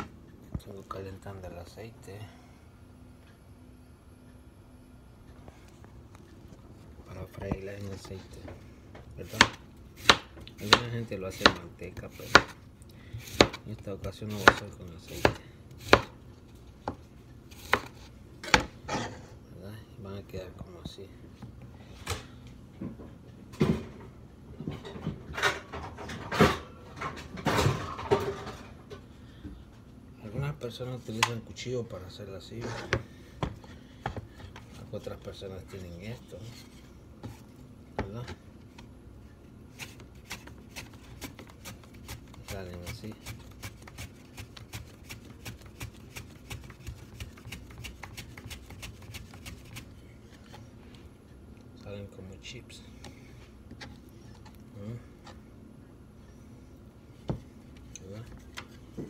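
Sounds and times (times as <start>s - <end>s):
banana slicing on mandoline: 14.3s - 16.1s, 39.7s - 49.9s
kitchen items knocking and clattering: 23.6s - 29.0s.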